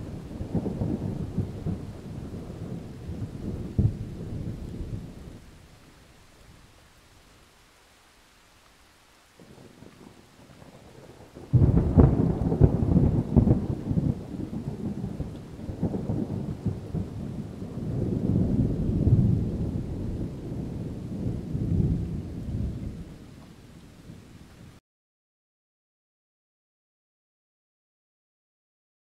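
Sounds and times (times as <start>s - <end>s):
thunder crack and rumble: 0.0s - 5.4s, 9.4s - 24.2s.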